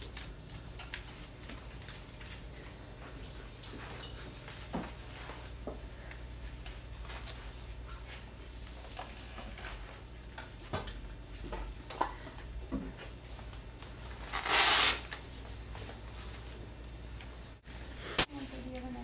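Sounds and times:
velcro ripping: 0:14.2 - 0:15.2.

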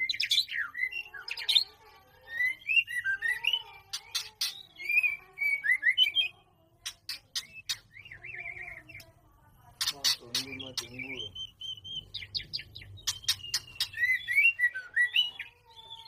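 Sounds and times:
bird singing whistled phrases: 0:02.3 - 0:06.3, 0:07.3 - 0:09.0, 0:10.3 - 0:16.0.

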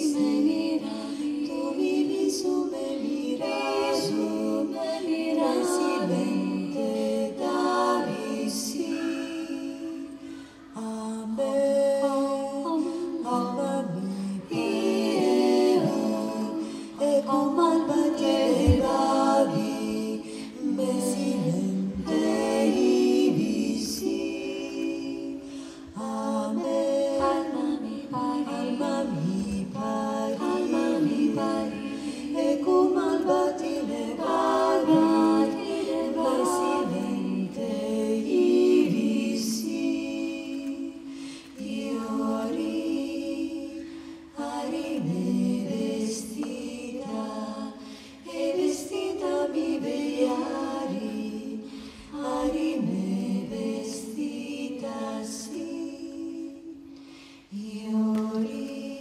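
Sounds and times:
female choir singing a cappella: 0:00.0 - 0:59.0.

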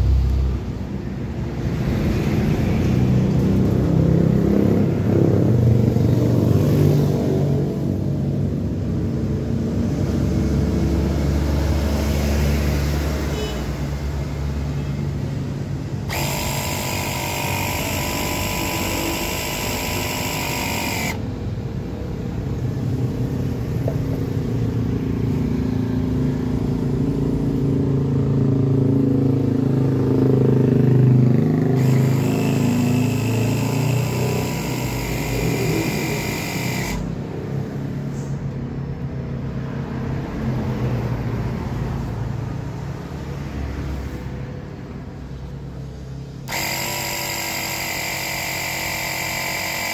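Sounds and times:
air compressor buzzing drone: 0:00.6 - 0:06.4, 0:07.0 - 0:28.1, 0:29.4 - 0:38.5, 0:46.2 - 0:49.9
brighter higher whine: 0:15.8 - 0:21.3, 0:31.8 - 0:37.2.

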